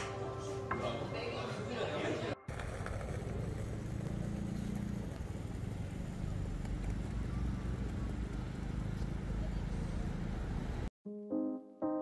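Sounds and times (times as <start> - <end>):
city road traffic rumble: 2.5 - 10.9.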